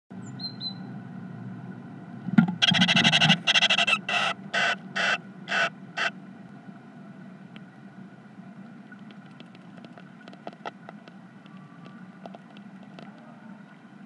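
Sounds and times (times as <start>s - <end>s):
birds harsh rasping calls: 2.6s - 6.1s.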